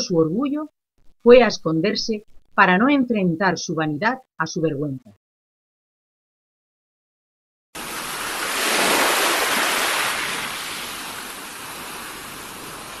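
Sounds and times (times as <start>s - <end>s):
water waves washing: 7.8s - 13.0s.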